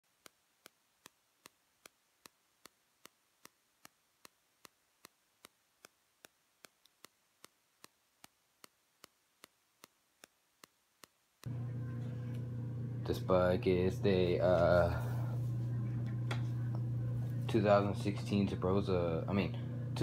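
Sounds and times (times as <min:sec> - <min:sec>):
faint steady ticking: 0:00.0 - 0:11.5.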